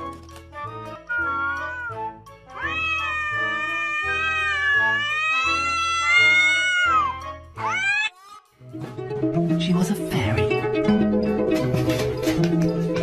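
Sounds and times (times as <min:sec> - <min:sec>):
cat yowling: 0:01.0 - 0:08.3
cat short rising cry: 0:01.1 - 0:02.0, 0:02.6 - 0:08.1.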